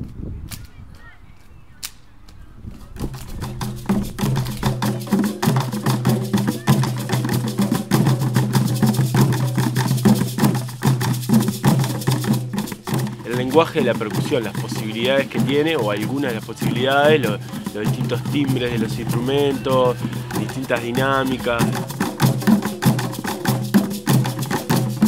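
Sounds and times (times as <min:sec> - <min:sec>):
hand drums fast rhythm: 0:03.0 - 0:25.0
sharp drum hits: 0:03.2 - 0:13.3.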